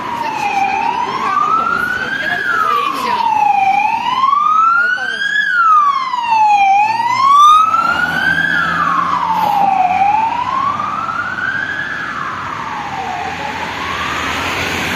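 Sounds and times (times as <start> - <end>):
faster-sweeping siren: 0.0 - 14.9
police siren wailing: 0.0 - 14.9.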